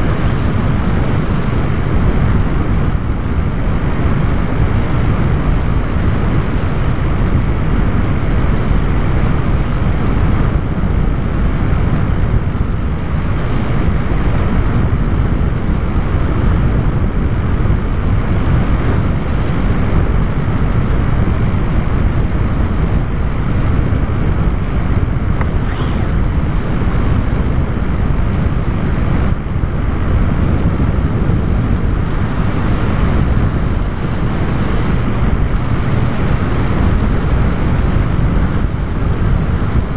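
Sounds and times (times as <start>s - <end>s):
short high-pitched tone: 25.4s - 26.2s.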